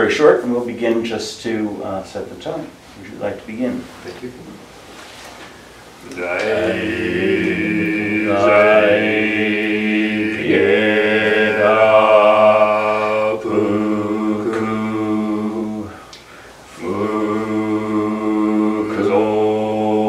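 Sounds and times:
men chanting in unison: 0:06.0 - 0:16.1, 0:16.7 - 0:20.0.

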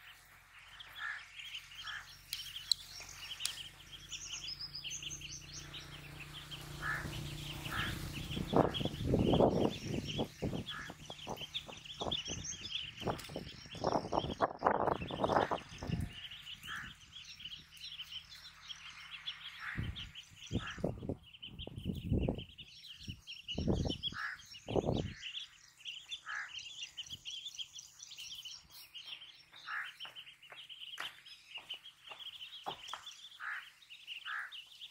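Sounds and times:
ducklings peeping: 0:00.0 - 0:34.9
low rumbles: 0:01.8 - 0:25.2.

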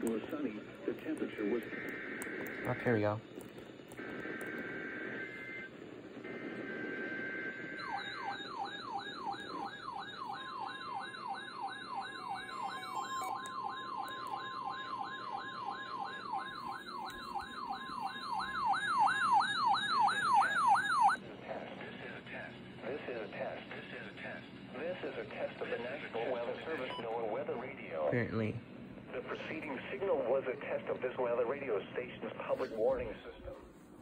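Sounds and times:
buzzy data tones: 0:00.1 - 0:05.7
wailing siren alarm: 0:04.0 - 0:21.2.

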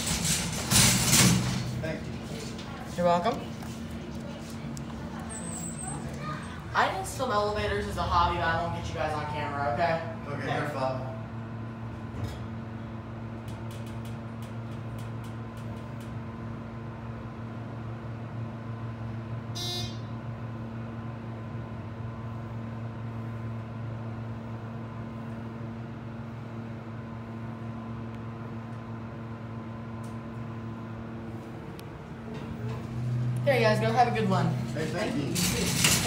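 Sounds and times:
elevator hum: 0:00.0 - 0:36.0
elevator chime: 0:19.6 - 0:20.2.

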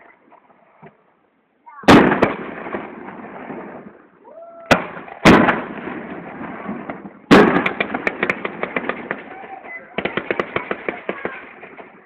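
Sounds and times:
sharp firework crack: 0:01.8 - 0:04.0, 0:04.7 - 0:12.0
fireworks bursting: 0:01.8 - 0:04.1, 0:04.7 - 0:12.0.

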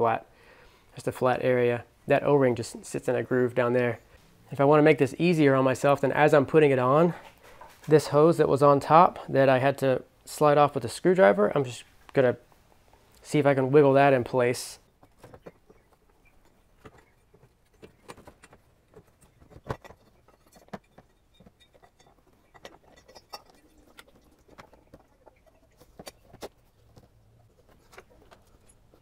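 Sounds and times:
metal and rubber parts clicking: 0:15.0 - 0:29.0.

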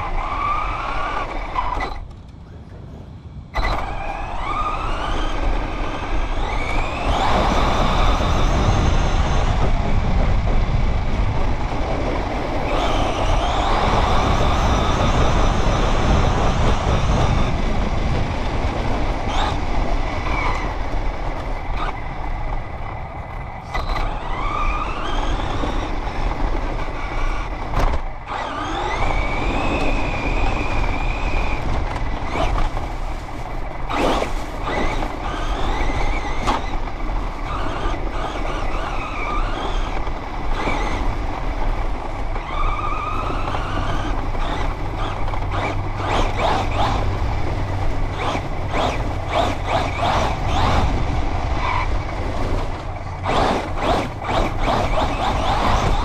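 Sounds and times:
rc car motor whine: 0:00.0 - 0:02.2, 0:03.6 - 0:56.0
chassis rush and rumble: 0:00.0 - 0:56.0.

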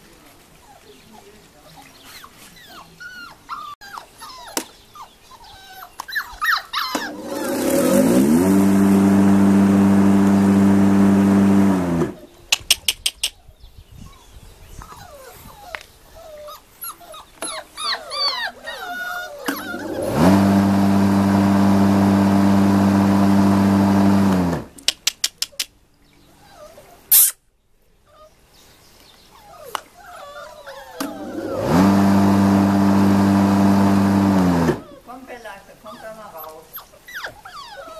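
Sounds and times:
puppies whimpering and yipping: 0:00.6 - 0:08.0, 0:14.1 - 0:20.1, 0:26.2 - 0:27.2, 0:28.0 - 0:31.8, 0:34.8 - 0:37.9
loud mechanical hum: 0:07.0 - 0:12.2, 0:19.5 - 0:24.7, 0:31.0 - 0:34.8.

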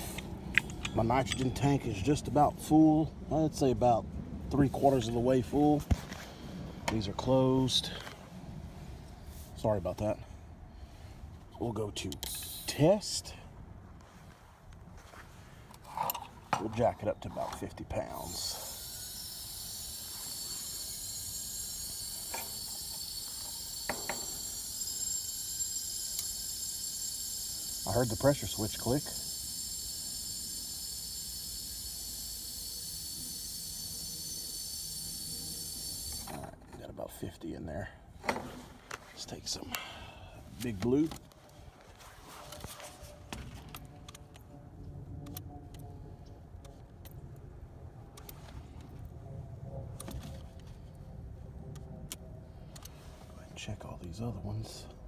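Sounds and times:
low steady rumble: 0:00.0 - 0:55.0
high-pitched hiss of nitrogen flowing: 0:18.3 - 0:36.3.

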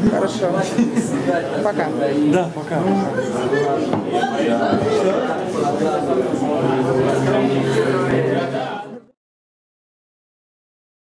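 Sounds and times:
voices: 0:00.0 - 0:09.2
steady low hum: 0:04.2 - 0:09.1
electronic music: 0:05.7 - 0:09.1.

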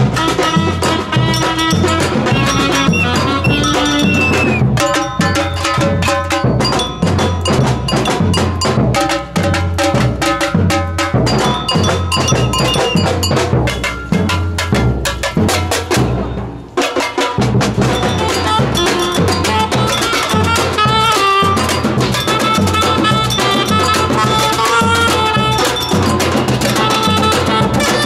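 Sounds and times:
alto saxophone melody: 0:00.0 - 0:04.6, 0:18.2 - 0:28.0
deep bass drums: 0:00.0 - 0:16.8
cowbell-like bell: 0:00.0 - 0:28.0
snare drums: 0:00.0 - 0:28.0.

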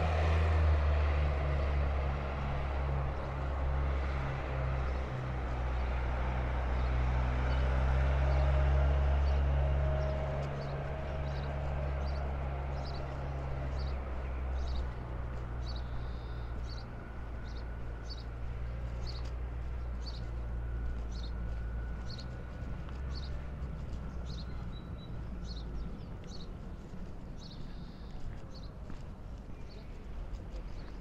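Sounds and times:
footsteps walking: 0:09.5 - 0:31.0.

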